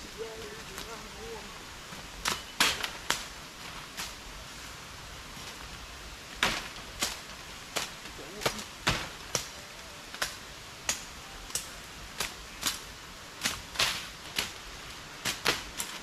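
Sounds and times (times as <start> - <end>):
machete chopping brush: 2.2 - 4.2, 6.4 - 16.0.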